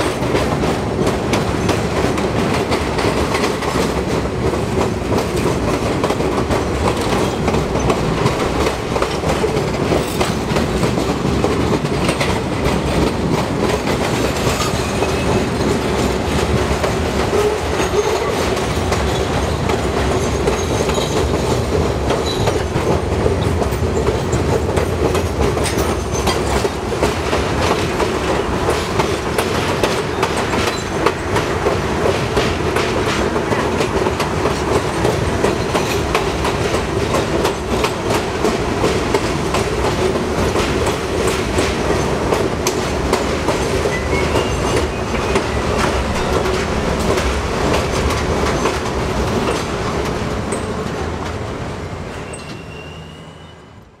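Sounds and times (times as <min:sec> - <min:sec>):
train wheels clattering over rail joints: 0:00.0 - 0:51.6
faint high squeal of train: 0:14.4 - 0:15.6, 0:17.3 - 0:18.4, 0:19.0 - 0:21.3, 0:22.2 - 0:22.8, 0:30.1 - 0:31.0, 0:43.8 - 0:46.5, 0:50.5 - 0:50.9, 0:52.0 - 0:54.0.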